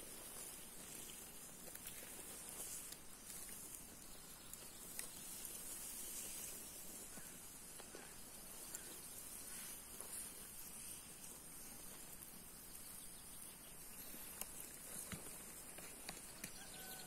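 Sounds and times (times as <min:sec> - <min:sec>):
steady high hiss: 0:00.0 - 0:16.4
faint ticks: 0:13.4 - 0:17.0.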